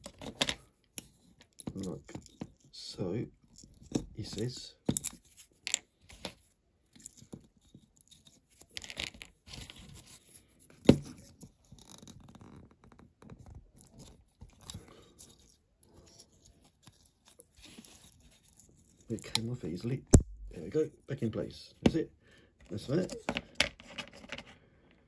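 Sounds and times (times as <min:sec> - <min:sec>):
plastic part scraping and rustling: 0:00.0 - 0:02.7, 0:03.5 - 0:20.0, 0:22.6 - 0:24.6
sharp knock: 0:20.1 - 0:20.6.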